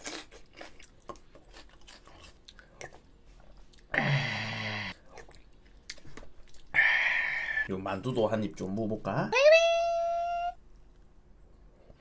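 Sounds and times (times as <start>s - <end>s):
chewing food with soft crunches: 0.0s - 3.9s, 4.9s - 6.7s.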